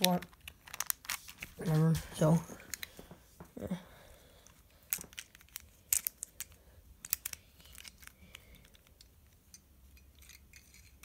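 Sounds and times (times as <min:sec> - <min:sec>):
plastic puzzle pieces clicking: 0:00.0 - 0:01.5, 0:04.8 - 0:09.4.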